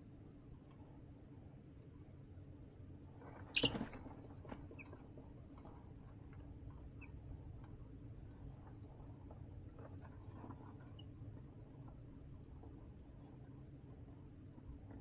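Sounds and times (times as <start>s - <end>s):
chicks scratching and pecking: 3.1s - 15.0s
chicks peeping: 3.2s - 7.8s.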